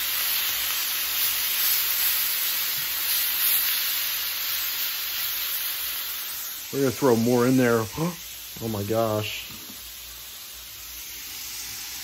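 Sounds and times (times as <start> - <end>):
meat and onions sizzling in skillet: 0.0 - 12.0.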